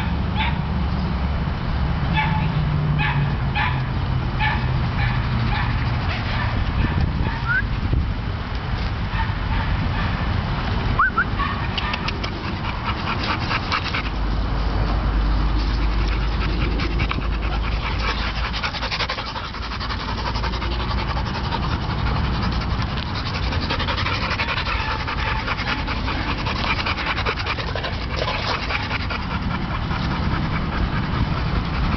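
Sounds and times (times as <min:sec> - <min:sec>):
dog panting: 0:04.4 - 0:07.4, 0:11.4 - 0:31.9
dog whining: 0:15.7 - 0:31.9.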